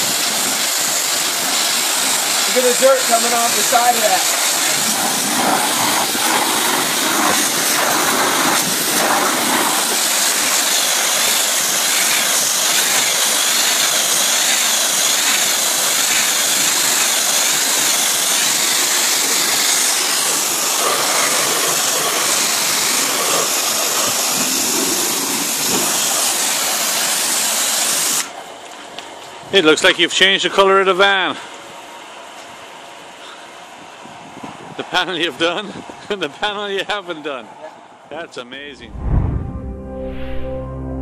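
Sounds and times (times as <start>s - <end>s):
pressure washer spraying: 0.0s - 28.4s.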